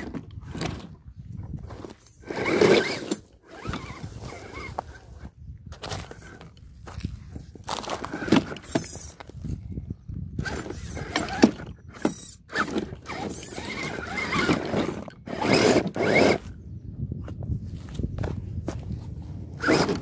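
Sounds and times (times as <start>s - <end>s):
tyres scraping over rock: 0.0s - 6.4s, 7.6s - 9.4s, 10.4s - 16.5s, 19.6s - 20.0s
electric motor whining: 2.2s - 5.2s, 10.4s - 16.5s, 19.6s - 20.0s.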